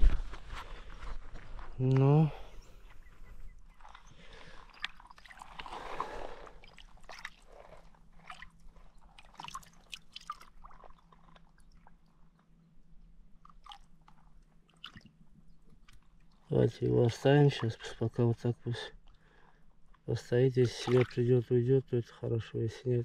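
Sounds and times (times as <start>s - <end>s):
small water splashes and trickles: 3.7s - 21.7s.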